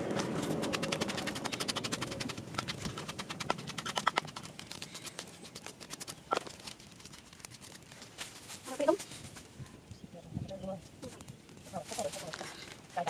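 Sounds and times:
pestle pounding in wooden mortar: 0.0s - 6.7s.

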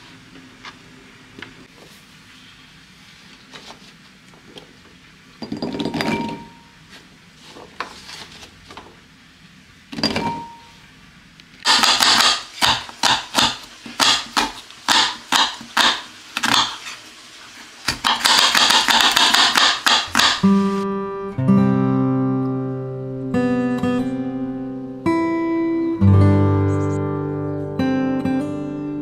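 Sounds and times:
knife chopping on wooden board: 11.7s - 16.8s, 17.9s - 20.5s.

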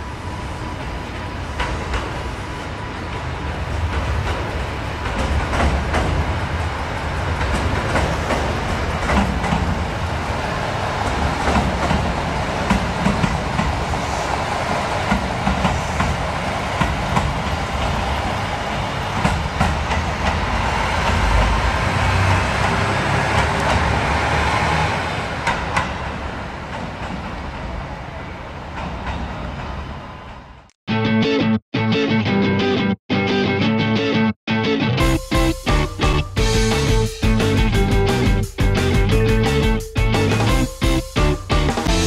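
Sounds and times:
diesel railcar engine rumbling: 0.0s - 30.7s, 35.0s - 42.0s
wheels clattering over rail joints: 3.1s - 13.8s.

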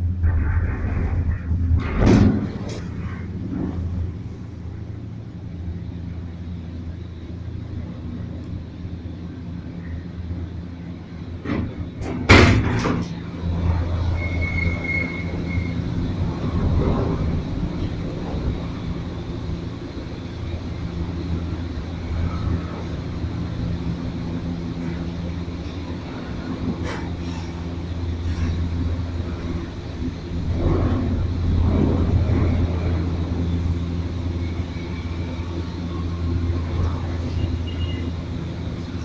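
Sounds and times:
cable car hum and rumble: 0.0s - 39.0s
loud sharp clunk: 11.4s - 13.2s.

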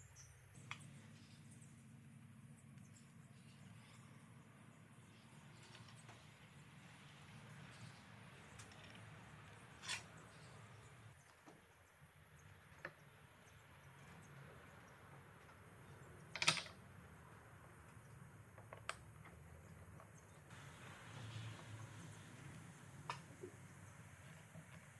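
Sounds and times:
faint room hiss: 19.8s - 24.9s.

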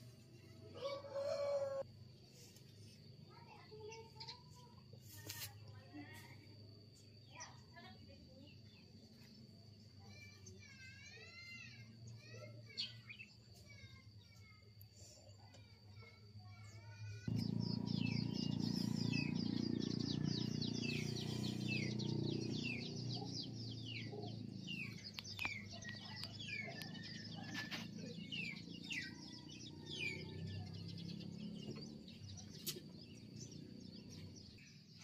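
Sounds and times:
birds chirping: 17.2s - 35.0s.

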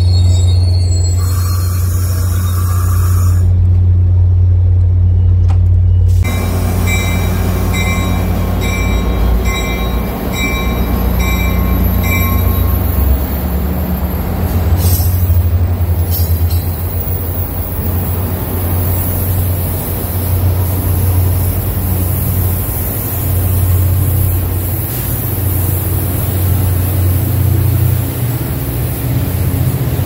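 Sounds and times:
diesel train engine humming: 0.0s - 30.0s
bell ringing: 6.3s - 13.2s.

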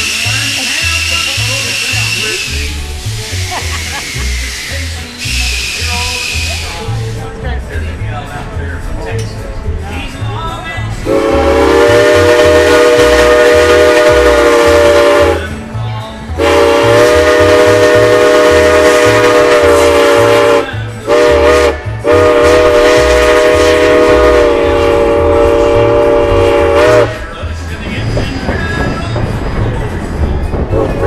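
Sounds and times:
steam locomotive chime whistle: 0.0s - 6.9s, 11.0s - 15.6s, 16.4s - 27.4s, 30.7s - 31.0s.

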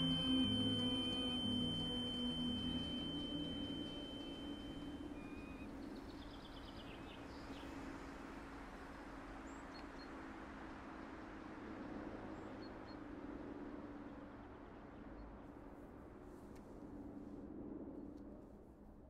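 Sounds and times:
high steady ringing tone: 0.0s - 6.5s
faint high chirps: 0.0s - 7.2s
low drone: 0.0s - 9.5s.

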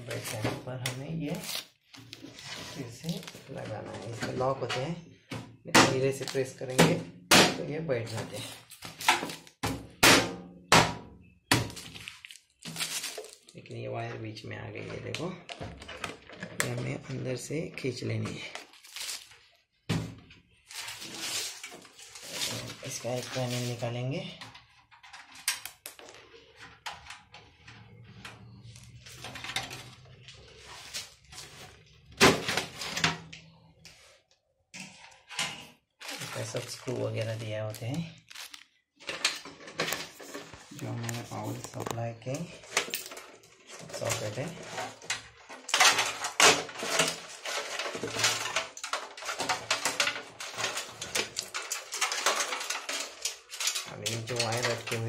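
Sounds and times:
cables rattling against metal case: 14.8s - 17.4s, 34.8s - 55.0s.

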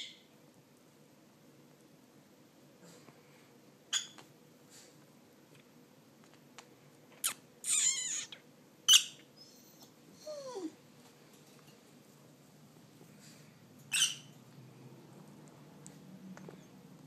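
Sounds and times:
lovebirds shrieking: 7.6s - 9.6s.

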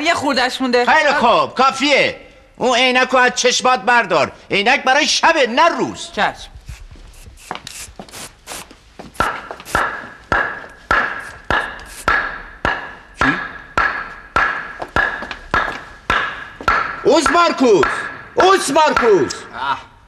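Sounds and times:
sledgehammer blows with metallic ring: 9.8s - 18.4s.

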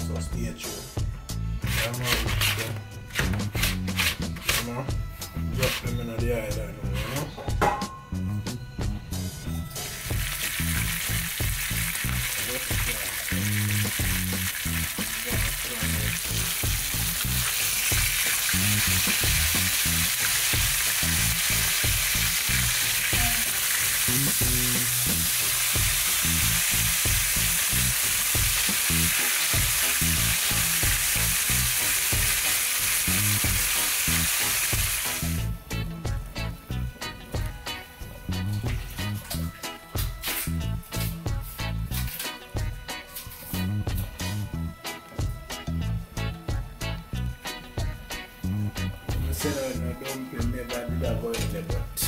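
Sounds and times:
background music with bass line: 0.0s - 52.0s
fish sizzling in hot oil: 9.8s - 35.5s.

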